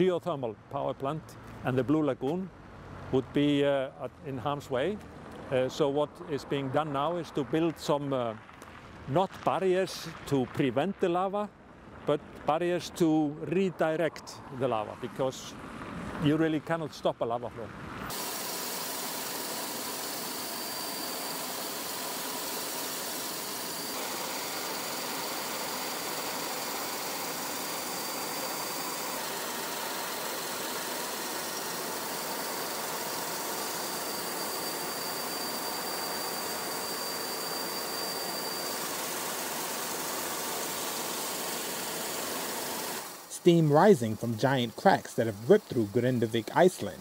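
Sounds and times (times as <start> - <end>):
aircraft rushing noise in flight: 17.6 - 43.3
faint high whine: 18.0 - 47.0.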